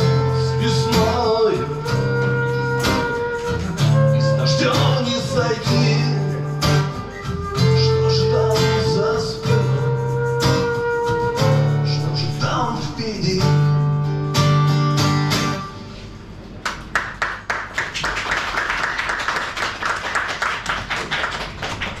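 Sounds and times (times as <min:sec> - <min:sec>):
acoustic guitar chords: 0:00.0 - 0:16.9
audience applause: 0:16.6 - 0:22.0.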